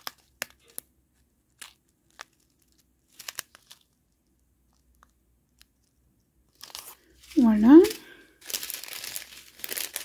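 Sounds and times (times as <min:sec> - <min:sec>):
plastic bag crinkling: 0:01.5 - 0:05.0, 0:06.5 - 0:10.0.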